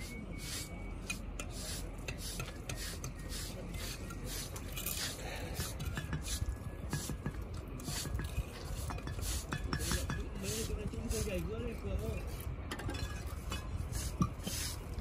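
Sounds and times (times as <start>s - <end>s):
trowel scraping mortar: 0.0s - 12.5s, 13.2s - 15.0s
trowel tapping brick: 5.6s - 10.6s.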